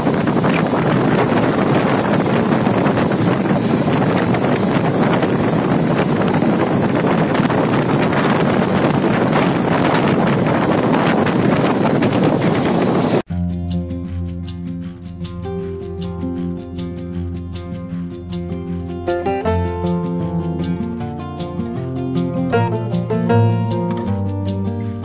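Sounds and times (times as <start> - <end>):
wind rushing over microphone: 0.0 - 13.3.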